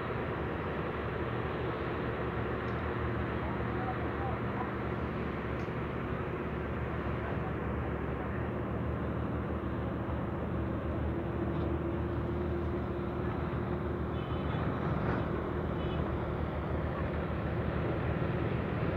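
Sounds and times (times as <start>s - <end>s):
engine drone: 0.0s - 18.9s.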